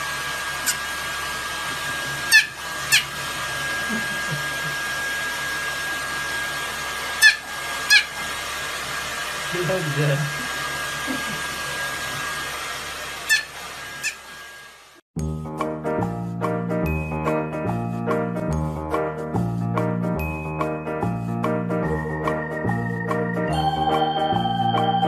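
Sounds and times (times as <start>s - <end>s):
hair dryer running: 0.0s - 15.1s.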